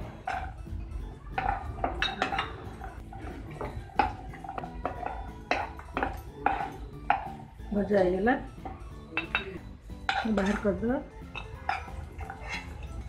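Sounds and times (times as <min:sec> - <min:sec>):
spatula scraping metal pan: 0:10.1 - 0:13.0.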